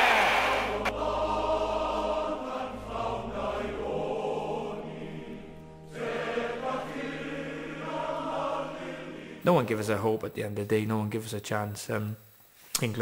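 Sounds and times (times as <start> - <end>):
choir singing sustained notes: 0.0 - 10.2.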